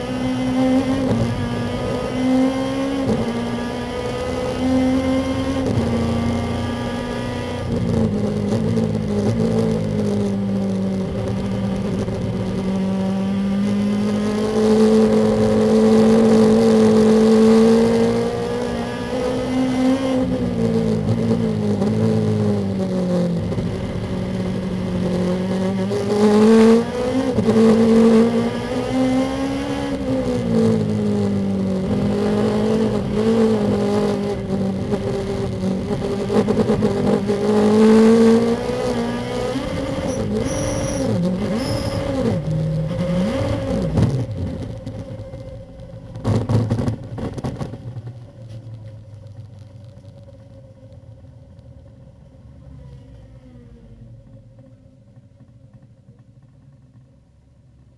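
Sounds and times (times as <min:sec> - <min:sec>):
race car engine running: 0:05.2 - 0:19.1.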